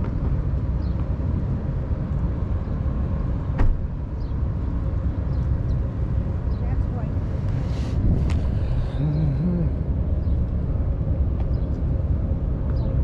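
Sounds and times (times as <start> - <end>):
wind buffeting microphone: 4.3 - 13.0.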